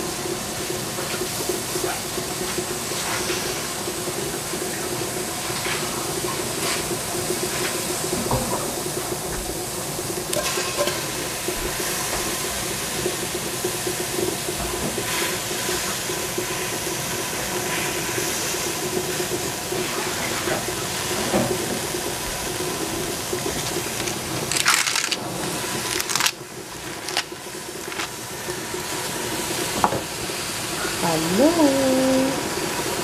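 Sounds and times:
greens sizzling with steam hiss: 0.0s - 33.0s.

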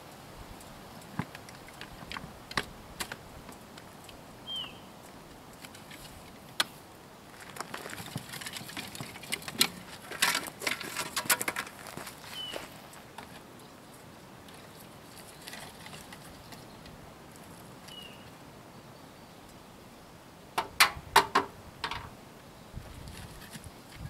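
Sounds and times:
dry branches clicking and knocking: 1.0s - 4.2s, 5.5s - 18.1s
bird chirping: 4.4s - 5.1s, 12.2s - 12.8s, 17.8s - 19.6s.

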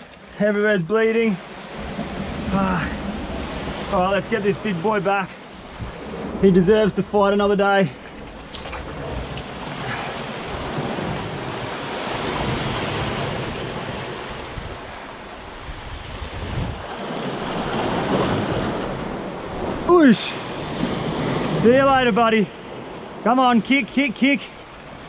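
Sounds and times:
surf washing against rocky shore: 0.0s - 7.0s, 8.1s - 23.3s
wind buffeting microphone: 1.7s - 19.9s.

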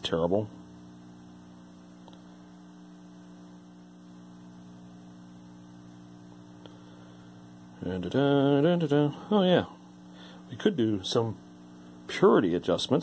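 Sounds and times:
television mains hum: 0.0s - 13.0s.

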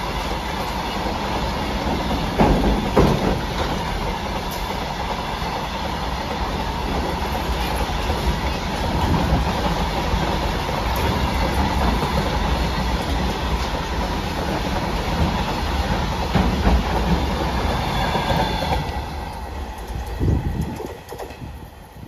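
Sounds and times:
freight train rumble: 0.0s - 22.0s
train wheels clattering over rail joints: 0.0s - 22.0s.

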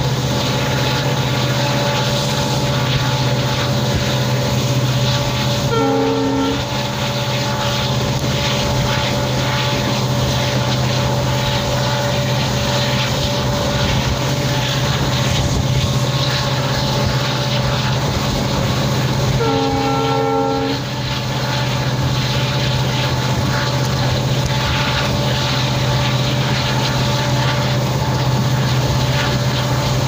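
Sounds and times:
diesel locomotive engine running: 0.0s - 30.0s
locomotive horn: 5.6s - 7.0s, 19.3s - 21.1s.

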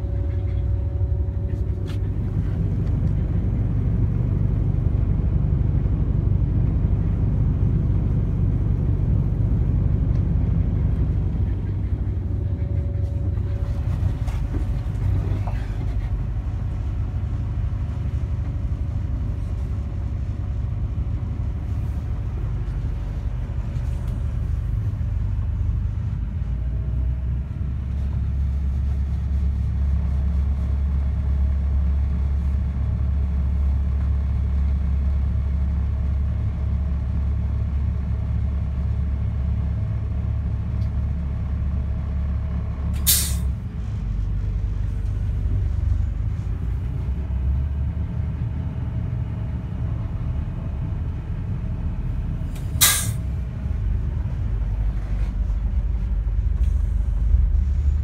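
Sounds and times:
diesel engine rumbling: 0.0s - 58.0s
brief sharp hiss: 43.0s - 43.6s, 52.6s - 53.3s.

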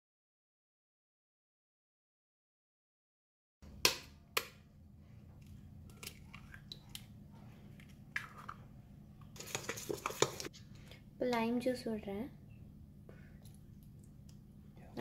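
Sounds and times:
steady low hum: 11.8s - 15.0s.

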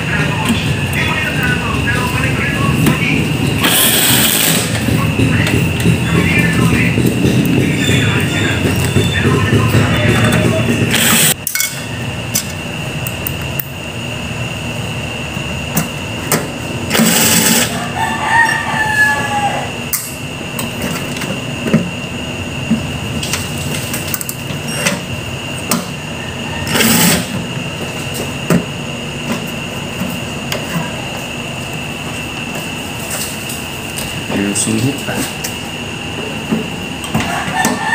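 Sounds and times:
distant rooster crowing: 17.4s - 19.9s, 25.9s - 27.4s, 37.1s - 37.9s.

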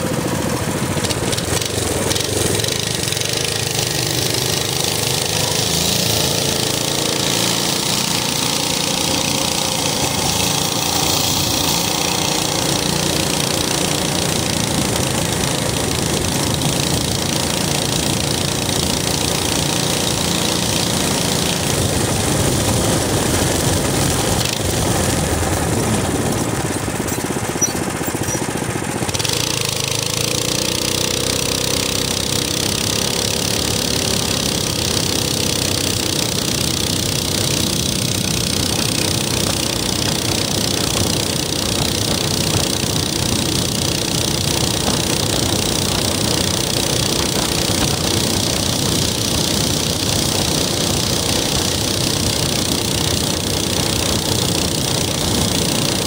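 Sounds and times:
small engine chugging: 0.0s - 56.0s.

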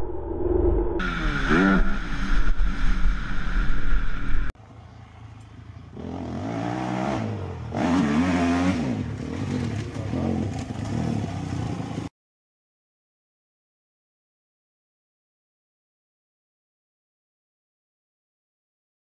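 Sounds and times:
low rumble on microphone: 0.0s - 4.5s
dirt bike engine revving: 1.0s - 4.5s, 5.9s - 12.1s.

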